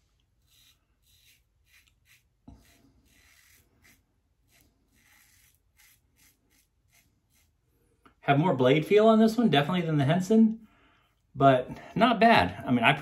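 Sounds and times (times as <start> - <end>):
razor scraping stubble: 0.2 - 7.7.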